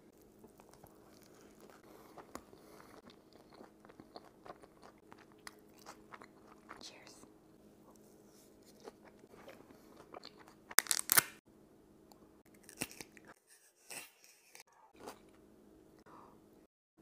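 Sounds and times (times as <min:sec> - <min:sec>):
chewing with crunches: 0:00.1 - 0:06.8, 0:07.9 - 0:10.8, 0:12.5 - 0:15.4
crunchy bite: 0:08.8 - 0:11.4, 0:12.6 - 0:13.3.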